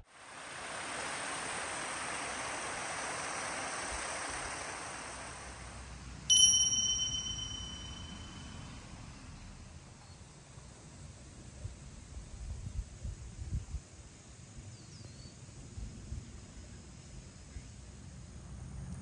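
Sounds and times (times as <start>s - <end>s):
small waterfall rushing: 0.0s - 8.4s
bright bell ding: 6.3s - 8.8s.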